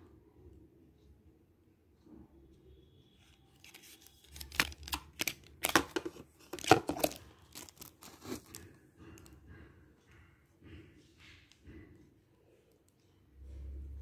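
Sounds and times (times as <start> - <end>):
cardboard box crackling and clicking: 3.6 - 8.6.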